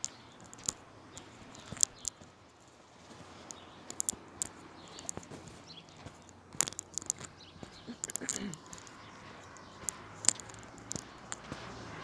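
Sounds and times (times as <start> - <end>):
footsteps on concrete: 3.0 - 12.0.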